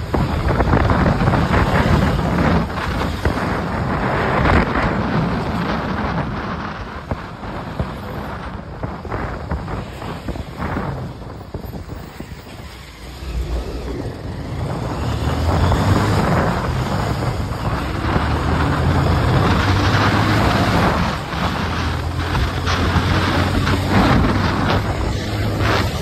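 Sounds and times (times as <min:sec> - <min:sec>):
rushing wind noise: 0:00.0 - 0:26.0
vehicle engine droning: 0:00.0 - 0:26.0.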